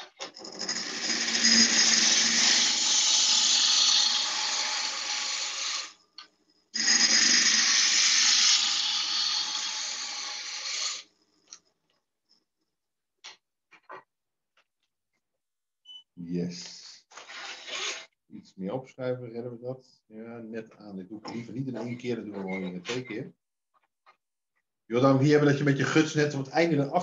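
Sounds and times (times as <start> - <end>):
gouge cutting wood on lathe: 0.0 - 6.0, 6.8 - 11.0.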